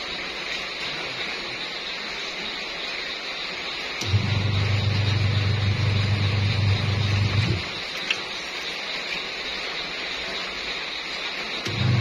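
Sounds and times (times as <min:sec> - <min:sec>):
washing machine motor humming: 0:03.3 - 0:12.0.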